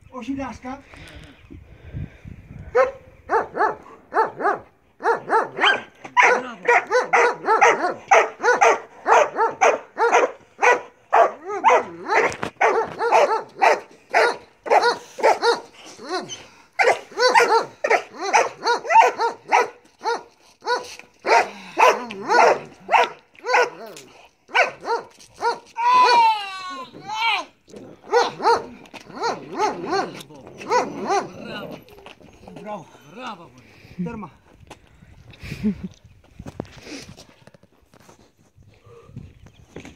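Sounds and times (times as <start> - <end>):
dog barking: 2.7 - 23.8, 24.5 - 26.2, 28.1 - 31.4.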